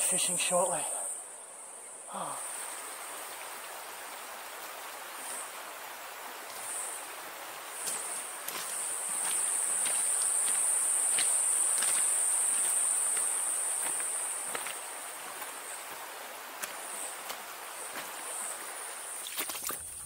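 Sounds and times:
faint ticks and rustles: 4.5s - 5.6s, 6.4s - 19.8s
high-pitched insect drone: 6.4s - 16.0s.

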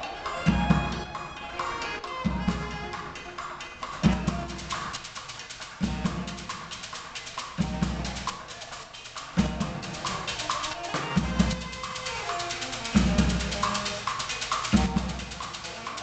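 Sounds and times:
saxophones playing: 0.0s - 5.0s, 9.0s - 16.0s
drumming on plastic buckets: 0.0s - 16.0s.

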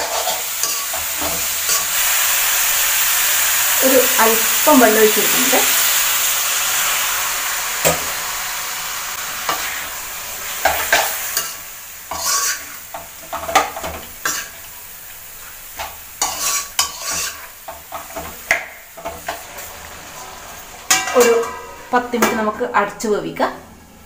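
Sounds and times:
spatula scraping a pan: 0.0s - 2.2s, 9.4s - 14.7s, 15.8s - 21.9s
food sizzling in a pan: 0.0s - 23.4s.

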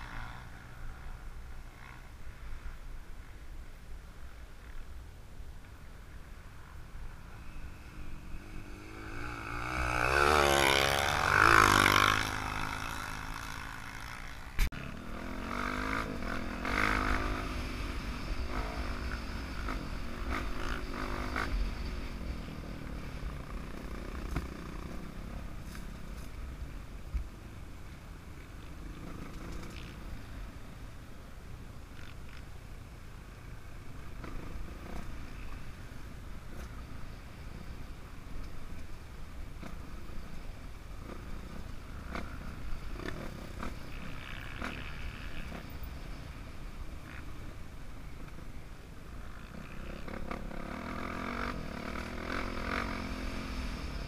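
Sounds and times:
dirt bike engine revving: 7.8s - 22.8s, 49.6s - 54.0s.

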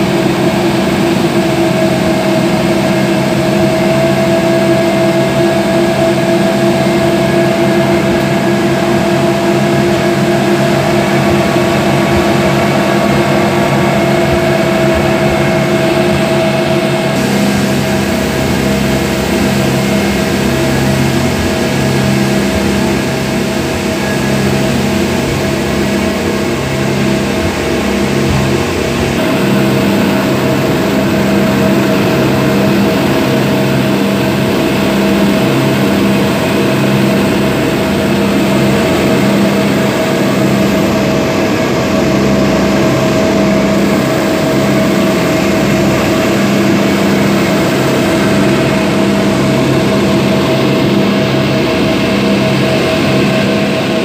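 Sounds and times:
outboard motors at full throttle: 0.0s - 54.0s.

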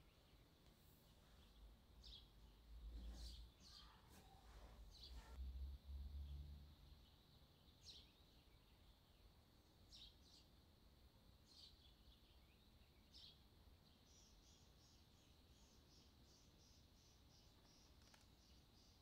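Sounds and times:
faint bird chirps: 0.0s - 10.6s, 11.4s - 19.0s.

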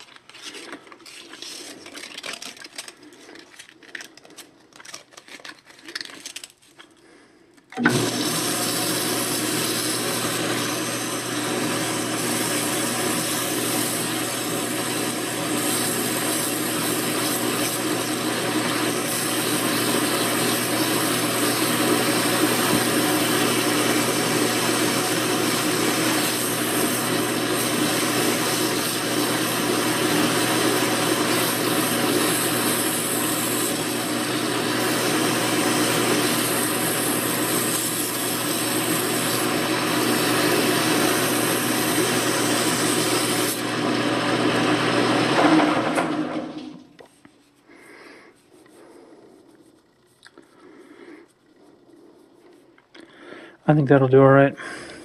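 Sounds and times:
lathe running hum: 7.8s - 46.8s.

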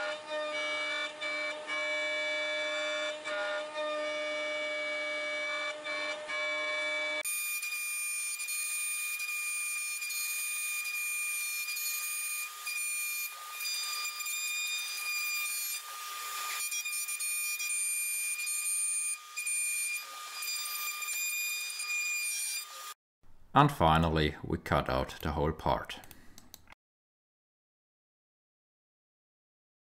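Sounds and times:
cnc router spindle whining: 0.0s - 7.2s
end mill cutting wood: 0.0s - 23.0s.

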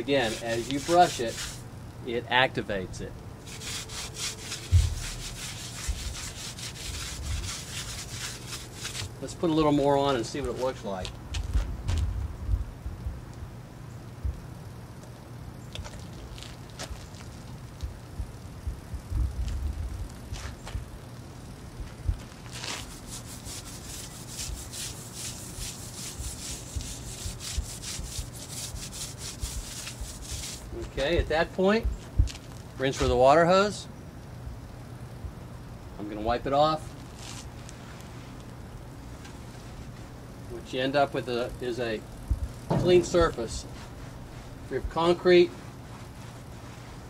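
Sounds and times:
hand brush scrubbing metal: 0.0s - 1.6s, 3.4s - 11.0s, 22.5s - 31.2s
low thump: 4.6s - 5.3s, 42.3s - 43.0s.

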